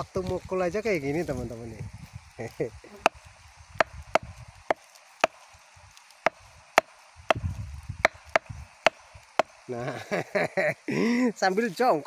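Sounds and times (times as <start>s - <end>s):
club knocking on palm stalk: 3.8s - 5.4s.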